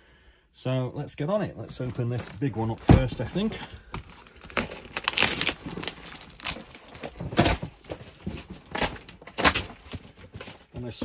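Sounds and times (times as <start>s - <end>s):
packing tape tearing: 4.0s - 10.7s.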